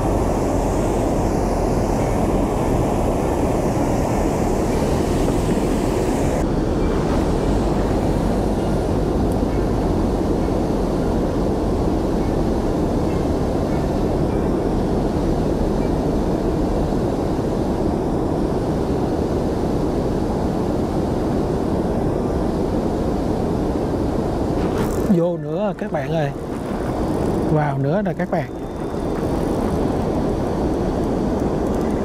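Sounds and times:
wind buffeting microphone: 0.0s - 32.0s
choppy water around boat: 23.6s - 32.0s.

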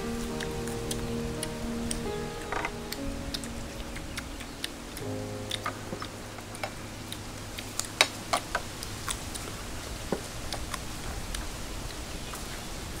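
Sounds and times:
people eating with lips smacking: 0.2s - 12.7s.

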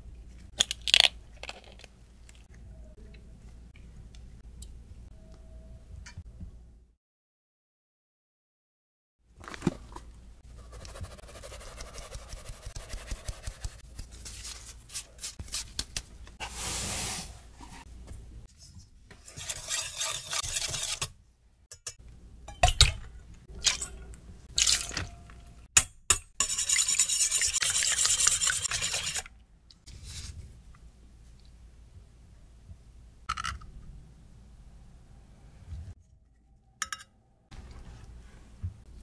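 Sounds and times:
fast whisking of eggs: 10.6s - 13.8s, 19.2s - 21.1s, 26.4s - 29.3s
wire whisk stirring flour: 10.6s - 13.8s, 19.2s - 21.1s, 26.4s - 29.3s
flour sifted through metal sieve: 16.4s - 17.8s.

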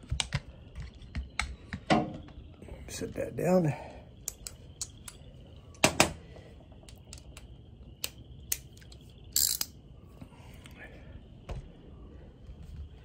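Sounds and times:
sharp clicks of tools: 6.9s - 9.8s.

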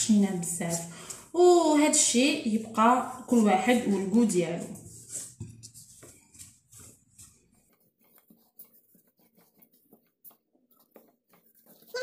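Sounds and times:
rolling pin rolling dough: 2.5s - 12.0s.

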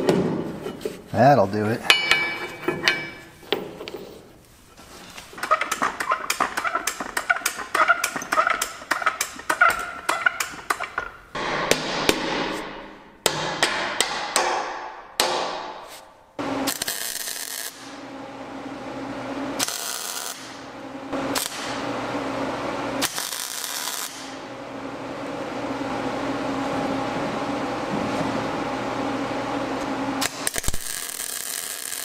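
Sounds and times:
hammer striking steel: 1.8s - 3.4s, 10.2s - 16.1s.

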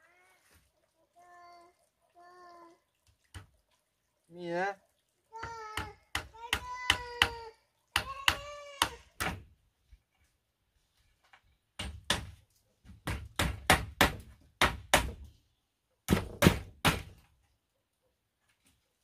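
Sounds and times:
hammer striking bamboo poles: 5.4s - 7.4s, 8.0s - 9.4s, 11.8s - 15.3s, 16.1s - 17.2s.

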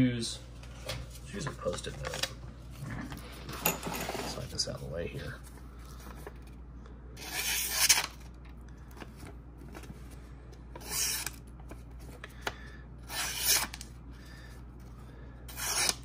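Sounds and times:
knife slicing paper: 13.1s - 13.8s, 15.5s - 16.0s.

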